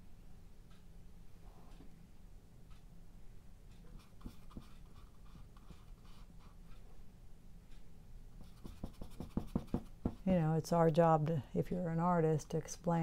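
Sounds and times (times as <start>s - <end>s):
paintbrush scratching on canvas: 8.4s - 10.3s.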